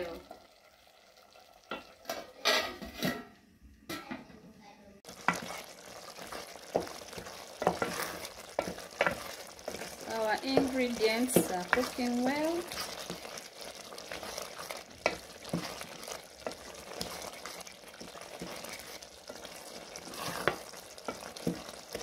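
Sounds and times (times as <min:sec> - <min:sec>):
sauce sizzling in pot: 0:00.0 - 0:03.2, 0:05.0 - 0:22.0
wooden spoon knocking pot: 0:05.1 - 0:13.3, 0:14.1 - 0:19.4, 0:20.3 - 0:22.0.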